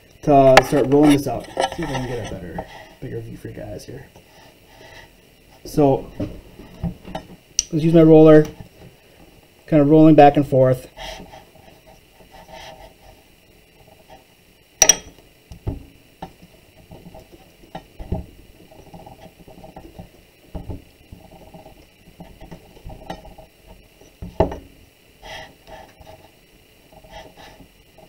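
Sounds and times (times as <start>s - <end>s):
wooden dowel rattling as it rolls: 0.6s - 2.9s, 14.8s - 24.7s.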